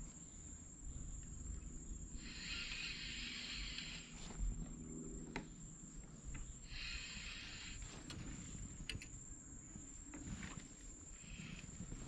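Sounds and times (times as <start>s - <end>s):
thin high whine: 0.0s - 5.6s.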